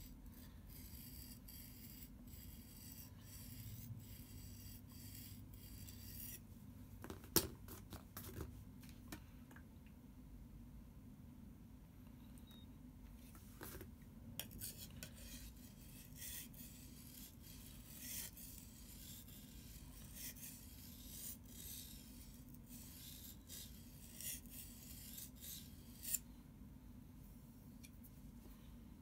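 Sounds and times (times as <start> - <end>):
knife scraping on whetstone: 0.0 - 6.4, 14.4 - 26.2.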